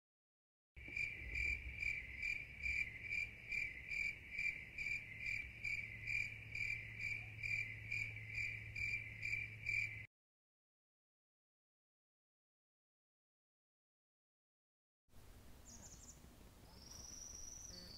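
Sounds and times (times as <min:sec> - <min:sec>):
cricket chirping: 0:00.8 - 0:10.1, 0:16.7 - 0:17.9.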